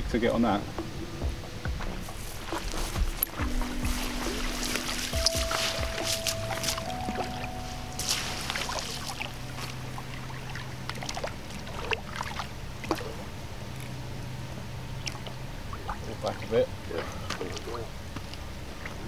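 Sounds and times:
steady low hum: 0.0 - 19.0
fish splashing in water: 2.1 - 14.0.

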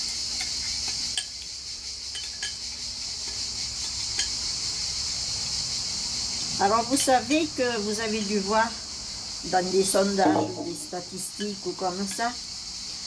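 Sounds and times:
insects chirring: 0.0 - 13.0
metal spoon clinking glass bowl: 10.2 - 11.6.

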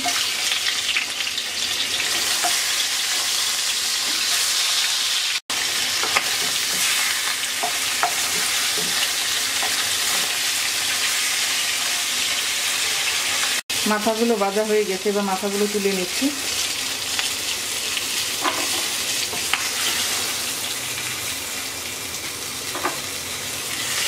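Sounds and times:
fish sizzling in oil: 0.0 - 24.0.

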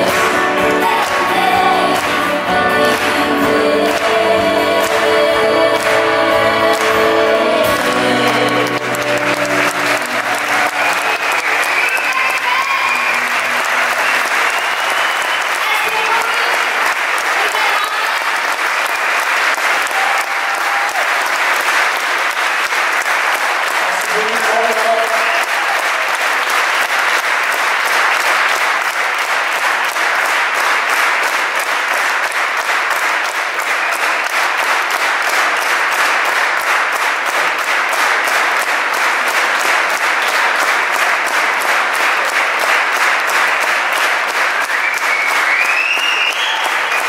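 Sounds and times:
audience applauding: 0.0 - 47.0
rising whistle: 11.1 - 15.6, 44.8 - 47.0.

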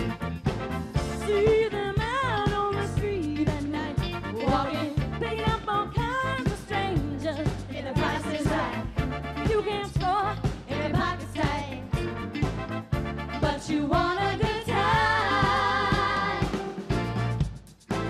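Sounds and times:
pop band accompaniment: 0.0 - 18.0
woman singing: 1.2 - 11.9.

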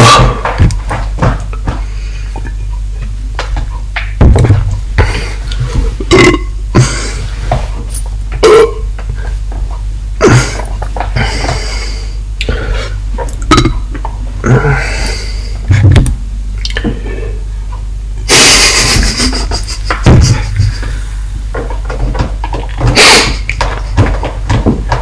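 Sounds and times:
knocks and thumps: 0.0 - 11.7, 15.7 - 16.2, 18.7 - 25.0
steady low hum: 0.0 - 25.0.

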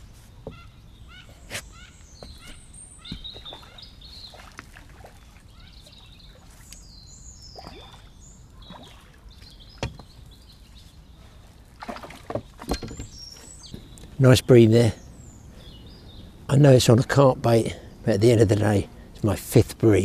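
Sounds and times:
small birds chirping: 0.0 - 20.0
water splashing and sloshing: 1.7 - 14.1.

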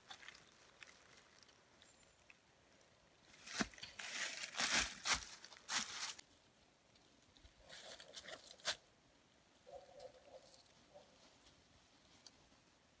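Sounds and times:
dry leaves and twigs crunching: 0.0 - 6.3, 7.1 - 8.8.

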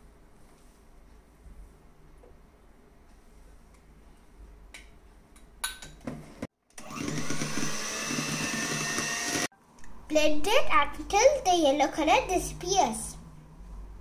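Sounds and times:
electric hand mixer whisking: 6.8 - 9.5.

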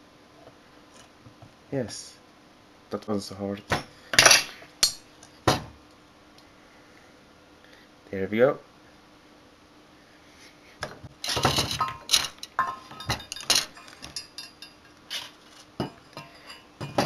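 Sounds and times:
glass and metal pieces clinking: 4.2 - 5.0, 11.2 - 17.0.

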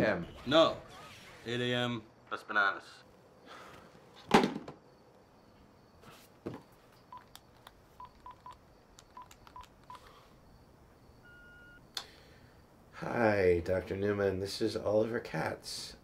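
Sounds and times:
phone keypad beeps: 7.1 - 7.4, 8.0 - 10.1, 11.2 - 11.8.

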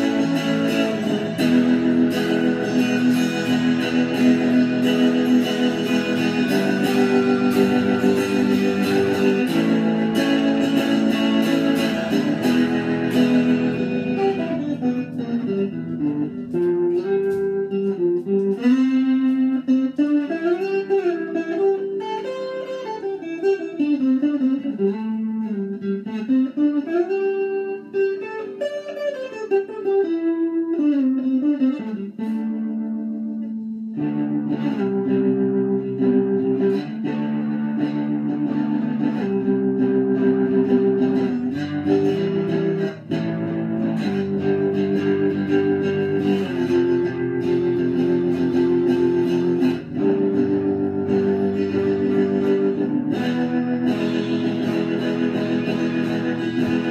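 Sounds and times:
electric guitar chords: 0.0 - 56.9
electric guitar melody: 0.0 - 56.9.

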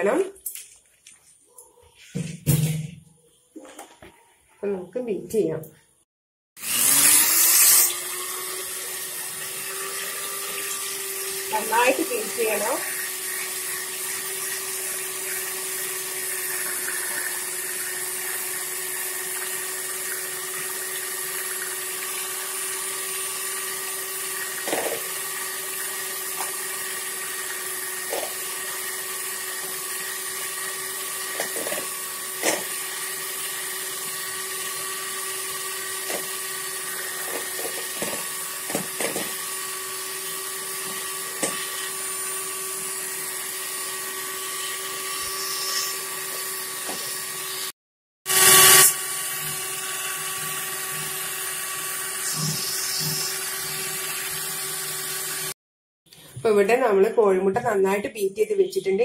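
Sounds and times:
electric hand mixer whisking: 6.6 - 55.6.

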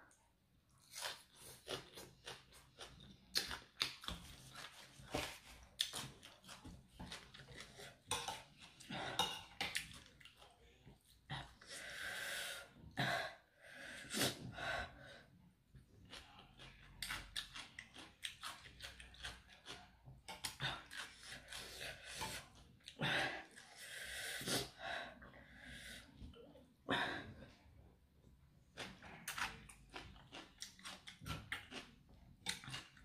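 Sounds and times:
wet chewing: 0.8 - 10.6, 16.0 - 23.7, 28.6 - 33.0
person sniffing and breathing: 23.4 - 26.2.

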